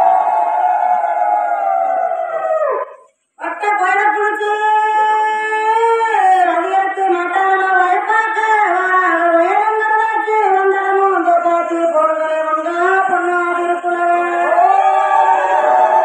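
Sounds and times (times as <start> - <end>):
women ululating: 0.0 - 2.8, 14.3 - 16.0.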